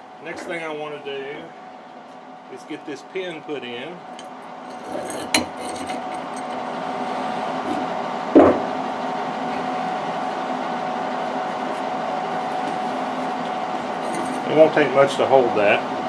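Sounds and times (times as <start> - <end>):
machine hum: 0.0 - 16.0
metal parts clinking: 4.2 - 6.7, 14.0 - 14.5.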